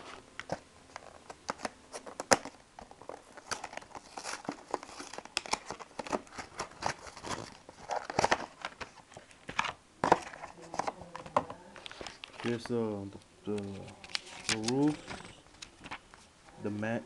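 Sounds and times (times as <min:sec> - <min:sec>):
packaging tearing and crinkling: 0:00.4 - 0:09.6, 0:13.7 - 0:16.0.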